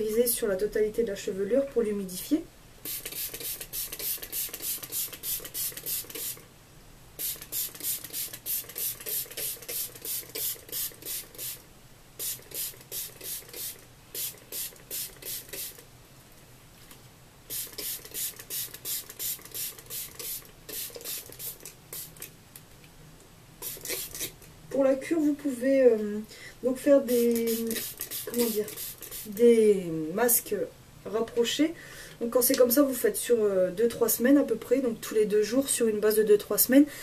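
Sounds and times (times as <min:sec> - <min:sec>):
spray bottle squirts hissing: 0:02.8 - 0:06.4, 0:07.2 - 0:11.6, 0:12.2 - 0:15.8, 0:17.5 - 0:22.3, 0:23.6 - 0:24.4, 0:27.1 - 0:29.3.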